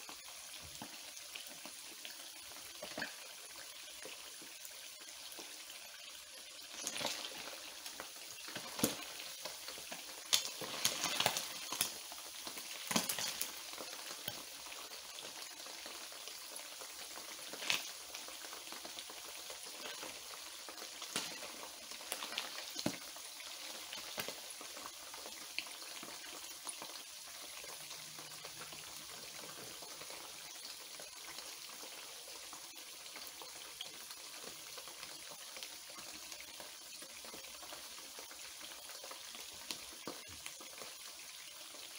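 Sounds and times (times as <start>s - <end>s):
fish deep-frying in oil: 0.0s - 41.9s.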